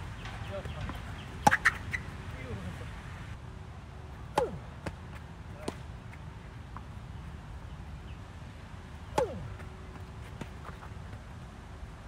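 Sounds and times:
tennis racket hitting ball: 0:00.2 - 0:02.0, 0:04.3 - 0:05.0, 0:09.1 - 0:09.6.

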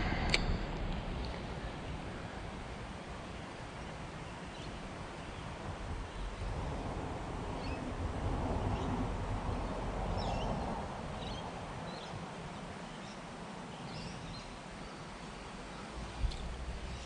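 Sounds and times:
birds chirping: 0:00.0 - 0:06.8
rushing noise with low rumble: 0:00.0 - 0:17.0.

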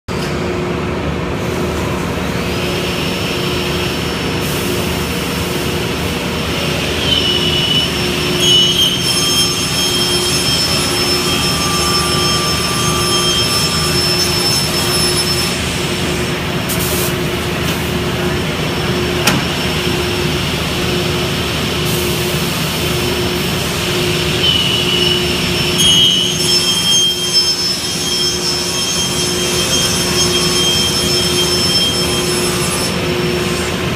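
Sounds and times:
high saw whine: 0:03.2 - 0:16.7, 0:18.9 - 0:33.9
beam saw running: 0:06.4 - 0:16.4.

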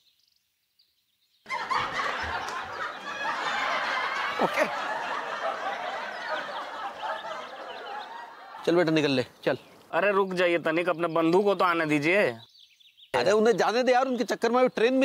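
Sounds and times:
crowd laughing: 0:01.5 - 0:09.1.

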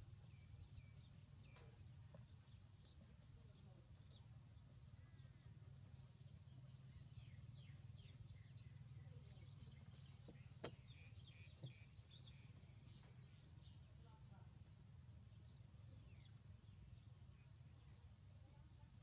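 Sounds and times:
low steady hum: 0:00.0 - 0:19.0
small birds chirping: 0:00.0 - 0:19.0.

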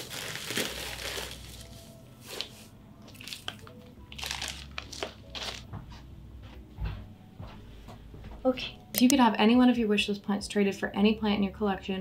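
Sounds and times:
plastic packaging crinkling: 0:00.0 - 0:05.6.

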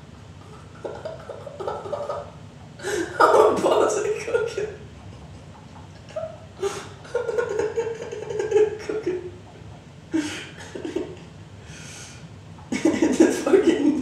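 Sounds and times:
man chuckling: 0:00.4 - 0:05.3, 0:06.0 - 0:09.4, 0:10.1 - 0:11.3, 0:12.7 - 0:14.0
breathy bursts: 0:02.8 - 0:03.2, 0:10.1 - 0:10.6, 0:11.6 - 0:12.3.

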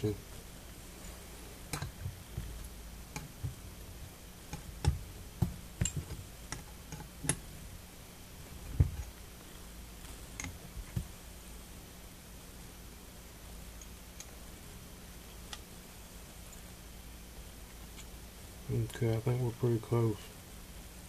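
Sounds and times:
small metallic clicks and taps: 0:01.7 - 0:03.6, 0:04.5 - 0:07.4, 0:10.4 - 0:11.1, 0:15.4 - 0:15.7.

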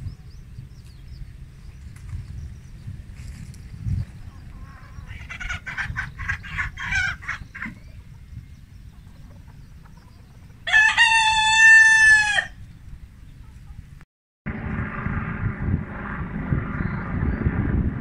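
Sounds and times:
chickens clucking: 0:04.0 - 0:11.6
rooster crowing: 0:10.6 - 0:12.6.

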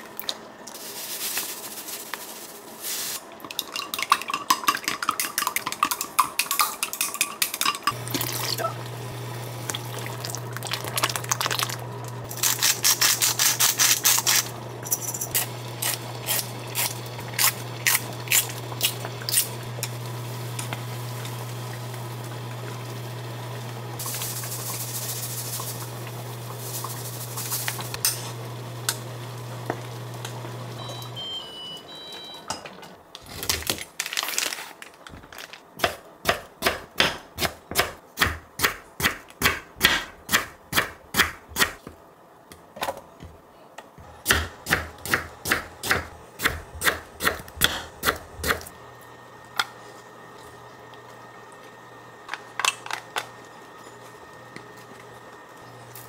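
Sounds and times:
induction hob hum: 0:05.6 - 0:33.2, 0:44.0 - 0:56.0
knife chopping on wooden board: 0:35.8 - 0:41.8, 0:44.2 - 0:48.7.

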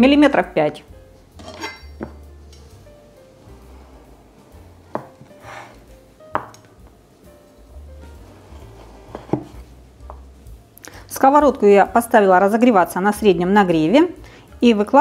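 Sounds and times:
quiet background music: 0:00.0 - 0:15.0
knife knocking on wooden board: 0:04.9 - 0:05.3, 0:06.3 - 0:06.6, 0:09.1 - 0:10.3.

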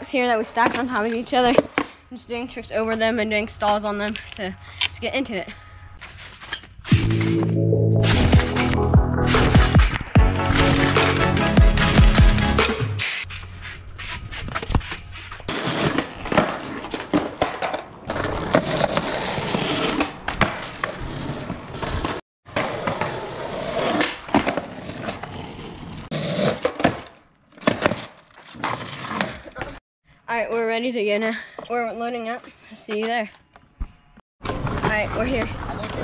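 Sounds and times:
skateboard rolling on hard ground: 0:13.3 - 0:29.8, 0:34.4 - 0:36.0
skateboard clacks and slaps: 0:34.4 - 0:36.0.

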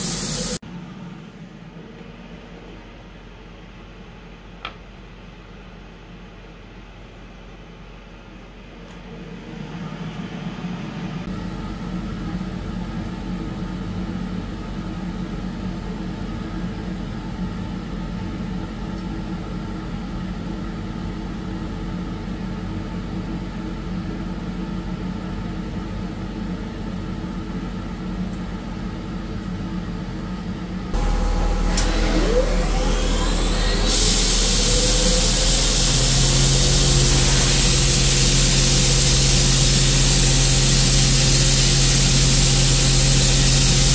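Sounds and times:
coolant spray hissing: 0:00.0 - 0:00.6, 0:31.0 - 0:43.9
machine humming: 0:00.0 - 0:00.6, 0:30.9 - 0:43.9
spindle whine: 0:31.0 - 0:43.9.

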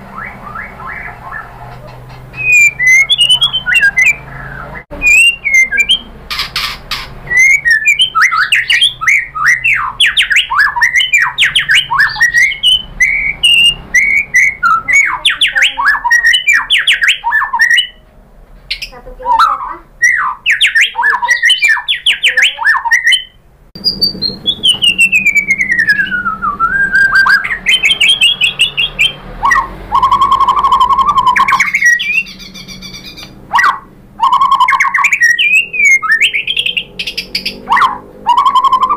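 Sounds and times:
bird trill: 0:00.0 - 0:18.0, 0:18.7 - 0:38.9
bird singing chattering phrases: 0:00.1 - 0:18.0, 0:18.7 - 0:38.9
long falling whistle: 0:23.8 - 0:28.3.

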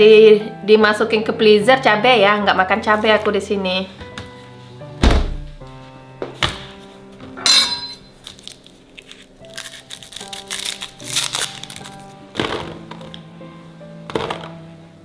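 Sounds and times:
background music with held notes: 0:00.0 - 0:15.0
glassy clink: 0:07.4 - 0:08.0.

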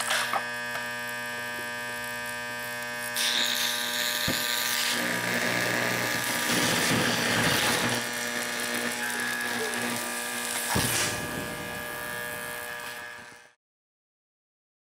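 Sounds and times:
electrical buzz: 0:00.0 - 0:13.6
burning and sparking hiss: 0:01.9 - 0:13.5.

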